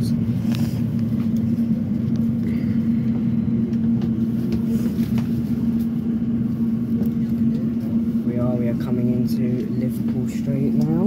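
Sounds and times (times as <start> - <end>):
electric train rumbling inside carriage: 0.0 - 11.0.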